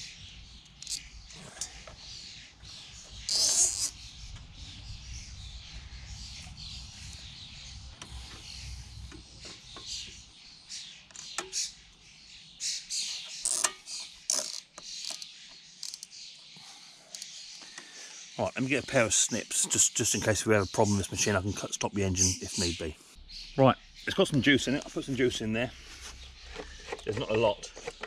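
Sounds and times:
birds chirping: 0.0 - 28.0
cable tie rasp: 3.2 - 4.0, 13.4 - 16.0, 25.9 - 28.0.

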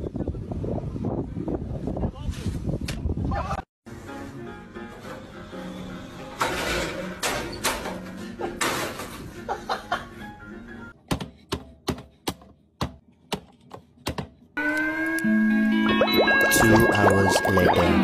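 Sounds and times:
music: 3.9 - 11.0, 14.9 - 18.0.

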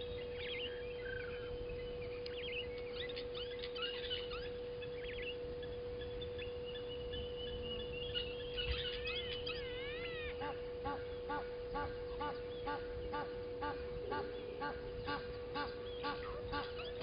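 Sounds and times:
steady hum: 0.0 - 17.0
whistled bird calls: 0.0 - 17.0
bird honking: 2.8 - 6.8, 7.4 - 17.0.

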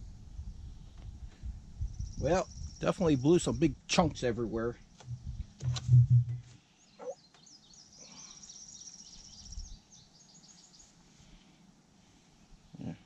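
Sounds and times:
insects chirping: 1.8 - 3.8.

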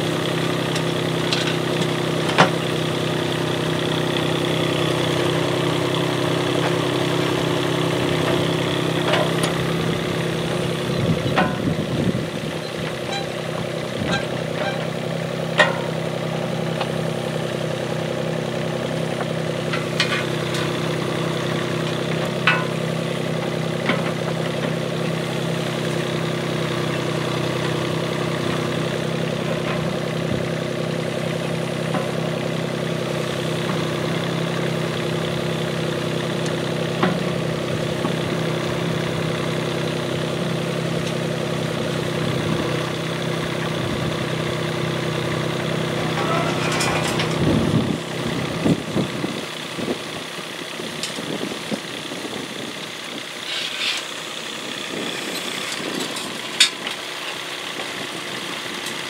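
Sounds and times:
excavator diesel engine running: 0.0 - 59.0
excavator bucket knocks and clanks: 11.2 - 11.8, 14.0 - 16.0, 46.1 - 47.6.

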